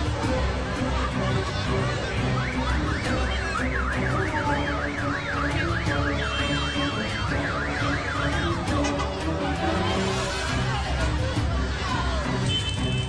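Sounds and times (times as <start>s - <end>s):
siren yelping: 2.3s - 8.8s.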